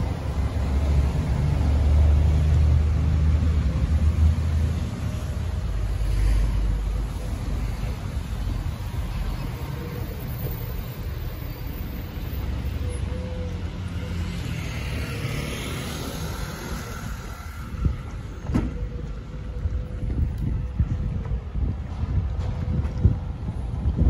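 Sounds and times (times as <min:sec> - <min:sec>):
low rumble of street traffic: 0:00.0 - 0:24.0
vehicle passing: 0:13.6 - 0:18.4.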